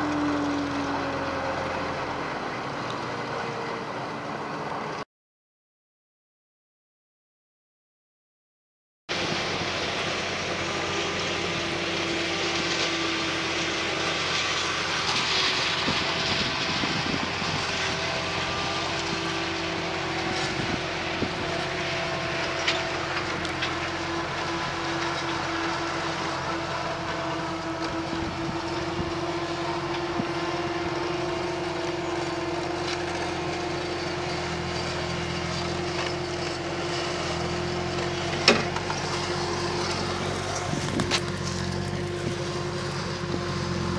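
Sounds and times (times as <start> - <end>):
tractor engine running: 0.0 - 5.0, 9.1 - 43.9.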